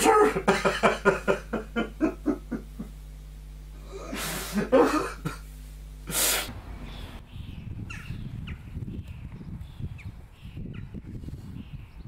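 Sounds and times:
outdoor background rumble: 0:00.0 - 0:12.0
nose blowing: 0:03.8 - 0:05.2, 0:06.0 - 0:06.5
man sobbing and sniffling: 0:03.8 - 0:05.4.

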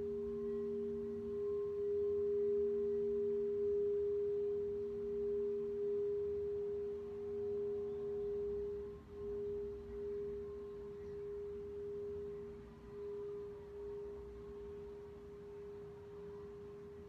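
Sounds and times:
singing bowls ringing: 0:00.0 - 0:17.0.

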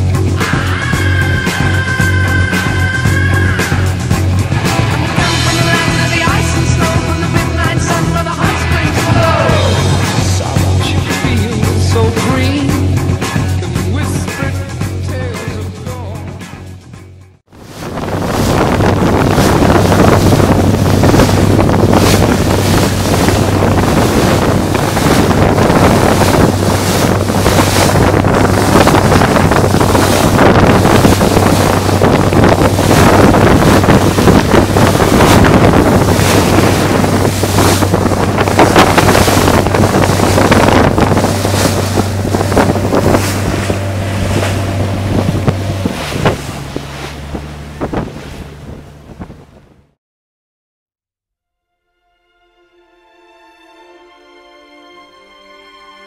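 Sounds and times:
water rushing past hull: 0:00.0 - 0:16.7, 0:17.5 - 0:50.0
boat engine humming: 0:00.0 - 0:50.0
wind buffeting microphone: 0:17.5 - 0:49.9.

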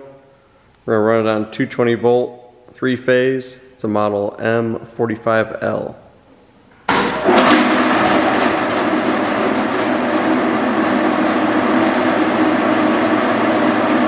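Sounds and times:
grinding mill rattling and humming: 0:06.9 - 0:14.0.

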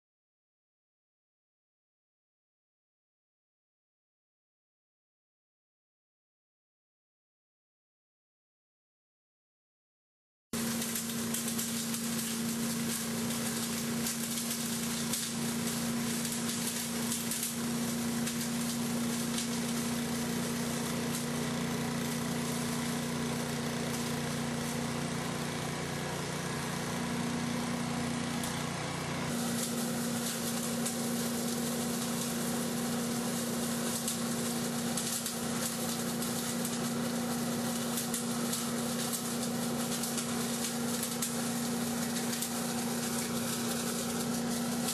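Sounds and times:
dry leaves crackling: 0:10.6 - 0:23.2, 0:29.3 - 0:44.9
leaf vacuum engine and fan: 0:10.6 - 0:44.9.

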